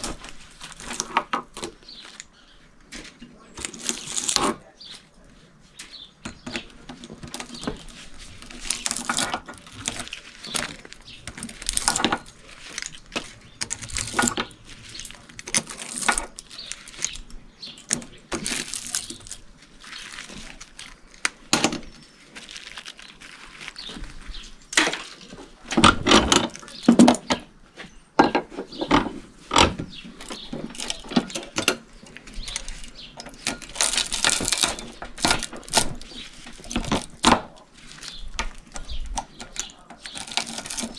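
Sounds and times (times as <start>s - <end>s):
pliers tearing copper wire: 0.0s - 2.3s, 3.6s - 4.6s, 6.2s - 22.0s, 29.5s - 40.9s.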